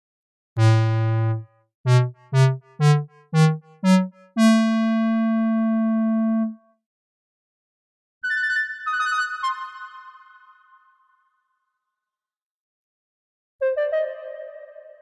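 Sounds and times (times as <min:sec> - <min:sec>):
synthesizer notes: 0:00.6 - 0:06.6.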